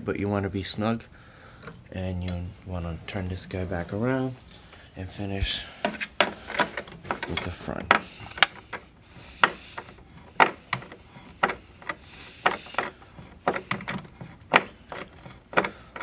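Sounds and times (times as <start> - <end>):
screw scraping: 5.7 - 16.0.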